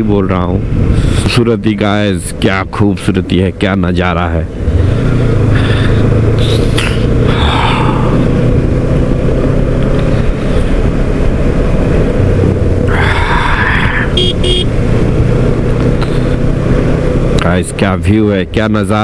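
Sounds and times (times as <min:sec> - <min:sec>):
motorcycle engine drone: 0:00.0 - 0:19.0.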